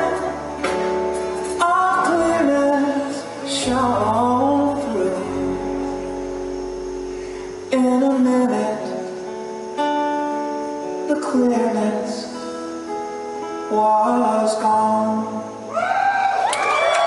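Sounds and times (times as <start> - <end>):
man singing: 0.0 - 6.4, 7.6 - 9.4, 11.0 - 12.6, 13.6 - 15.6
acoustic guitar strumming: 0.0 - 15.7.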